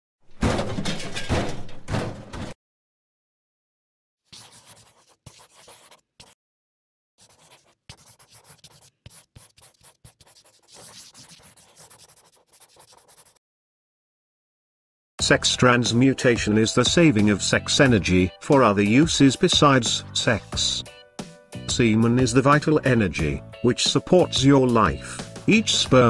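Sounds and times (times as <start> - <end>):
marker scratching on whiteboard: 4.3 - 6.4, 7.2 - 13.4.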